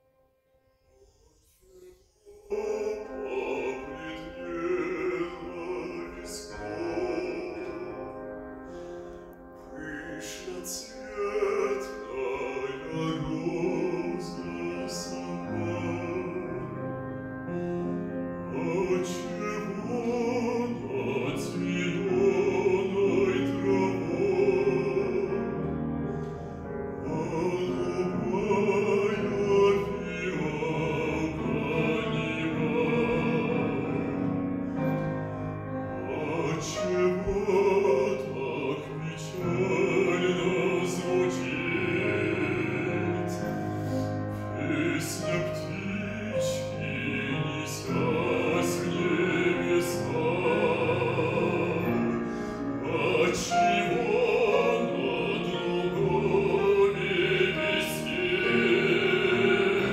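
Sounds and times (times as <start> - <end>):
grand piano: 0.0 - 59.9
man singing operatically: 2.2 - 8.3, 9.7 - 17.7, 18.3 - 25.6, 26.9 - 34.4, 35.4 - 59.9.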